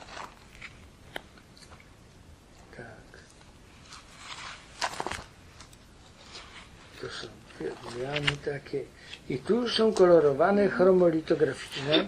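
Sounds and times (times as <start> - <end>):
soft rustle: 0.0 - 12.0
soft murmur: 5.6 - 12.0.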